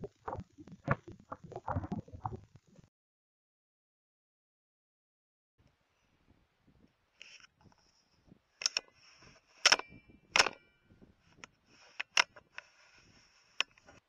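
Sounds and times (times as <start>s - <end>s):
sharp clicks and knocks: 8.6s - 8.9s, 9.6s - 10.6s, 11.4s - 12.7s.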